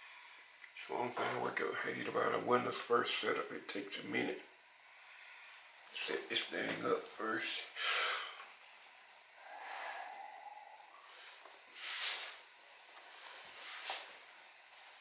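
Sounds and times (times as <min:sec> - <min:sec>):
man breathing out: 0:09.4 - 0:12.4.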